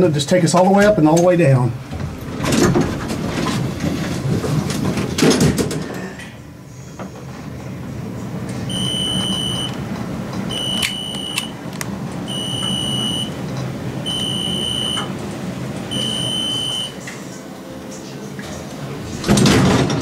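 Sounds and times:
elevator car rumbling: 0:00.0 - 0:20.0
high electronic beeps: 0:08.7 - 0:09.8, 0:10.5 - 0:11.5, 0:12.3 - 0:13.3, 0:14.1 - 0:15.1, 0:15.9 - 0:17.0
clicks: 0:10.5 - 0:11.9.

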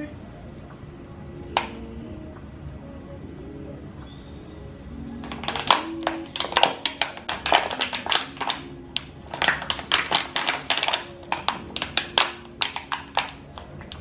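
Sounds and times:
plastic bottle crackling: 0:05.2 - 0:14.0.

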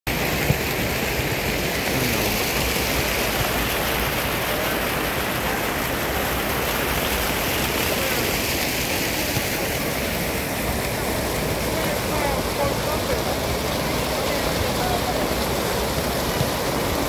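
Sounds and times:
fountain water splashing: 0:00.1 - 0:17.0
people's voices: 0:01.8 - 0:02.8, 0:07.7 - 0:16.5.

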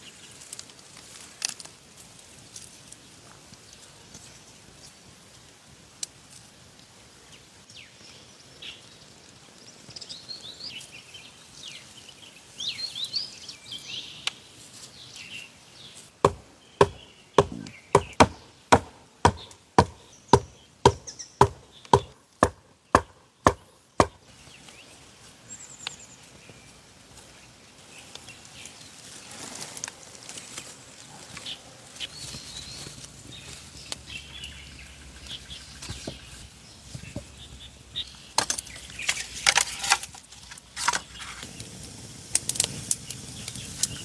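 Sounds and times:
hollow knocks on bamboo: 0:16.2 - 0:24.2.

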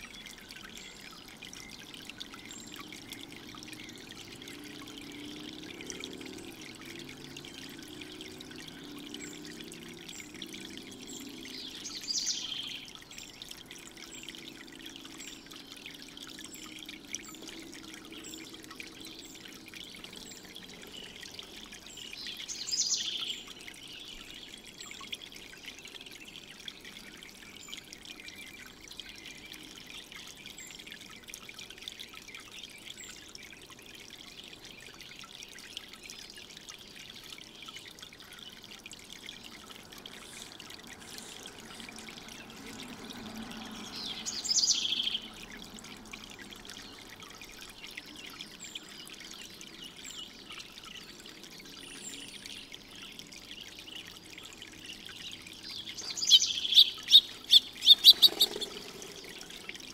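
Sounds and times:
fountain water trickling: 0:00.0 - 0:59.9
birds chirping: 0:55.2 - 0:59.9.

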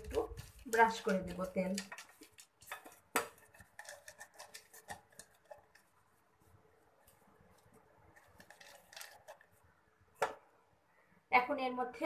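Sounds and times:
paper liner rustling: 0:00.0 - 0:06.0, 0:07.0 - 0:09.6.

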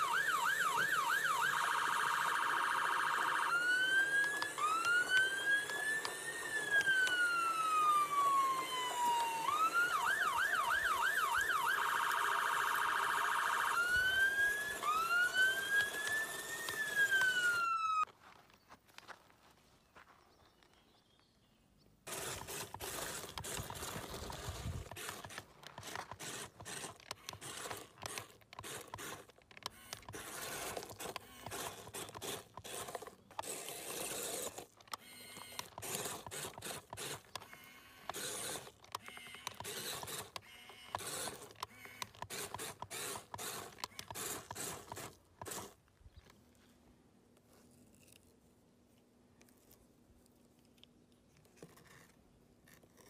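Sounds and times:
toy motor gears clicking: 0:00.0 - 0:18.1, 0:22.0 - 0:45.8
wheels crunching gravel: 0:22.1 - 0:37.5.

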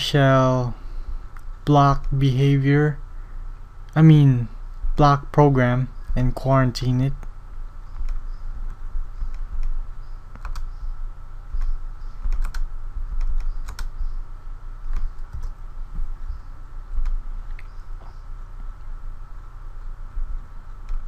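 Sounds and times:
low electrical hum: 0:00.0 - 0:21.0
keyboard and mouse clicks: 0:07.9 - 0:10.7, 0:11.6 - 0:14.0, 0:14.9 - 0:15.6, 0:17.0 - 0:18.2.

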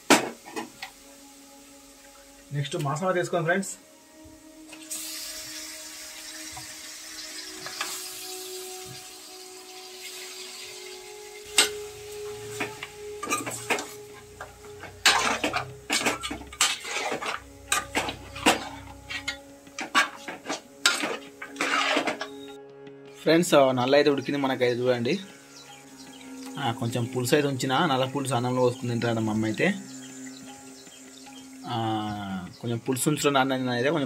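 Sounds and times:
chicken sizzling in oil: 0:00.0 - 0:03.1, 0:03.7 - 0:22.5, 0:24.2 - 0:34.0
spoon scraping and clinking pot: 0:12.5 - 0:22.5.

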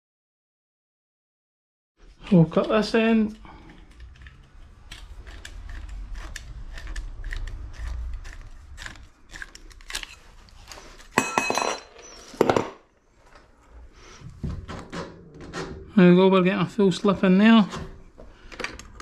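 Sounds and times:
metal tools clinking: 0:11.1 - 0:12.6.

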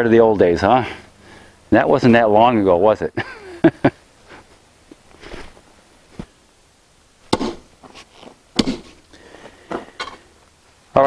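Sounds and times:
hand tamper striking gravel: 0:07.3 - 0:09.0.

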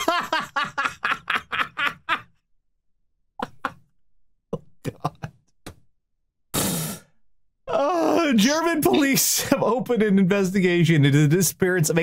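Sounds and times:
person laughing: 0:00.0 - 0:02.4, 0:03.4 - 0:03.9, 0:04.6 - 0:05.4
loud breathy exhale: 0:06.6 - 0:07.2.

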